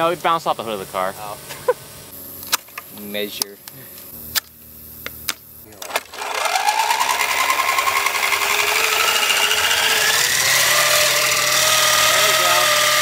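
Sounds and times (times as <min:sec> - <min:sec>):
rotary tool motor whining: 0:05.8 - 0:13.0.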